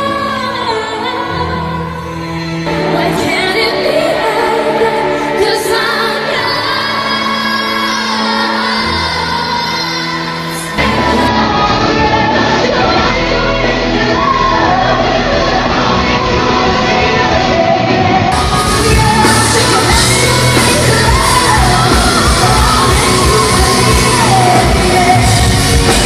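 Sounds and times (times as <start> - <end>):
pop band playing: 0.0 - 26.0
woman singing live: 0.0 - 26.0.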